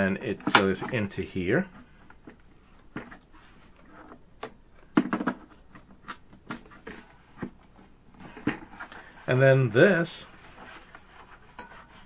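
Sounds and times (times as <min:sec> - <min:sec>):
plastic parts knocking and clicking: 0:00.4 - 0:01.0, 0:02.1 - 0:07.7
plastic clatter: 0:04.0 - 0:07.6.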